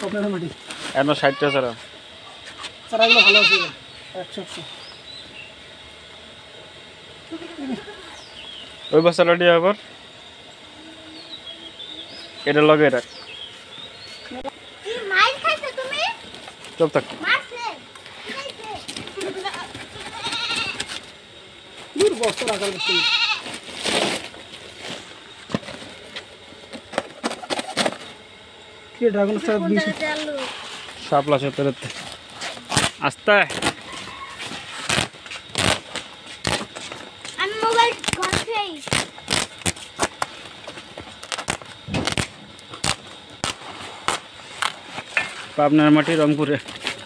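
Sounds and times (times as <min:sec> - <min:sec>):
plastic sack rustling: 0:23.4 - 0:28.1.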